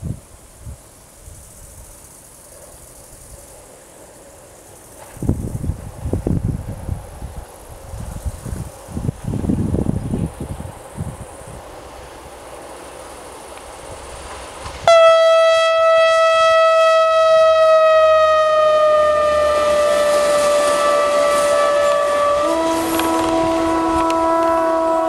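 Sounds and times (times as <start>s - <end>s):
train horn blast: 14.8s - 25.0s.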